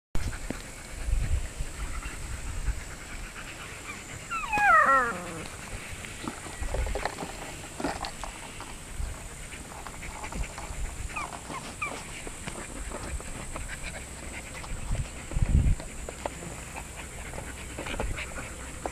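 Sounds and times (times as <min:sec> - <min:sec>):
dogs scuffling: 0:03.6 - 0:18.9
puppy whining: 0:03.9 - 0:05.7, 0:11.1 - 0:12.2.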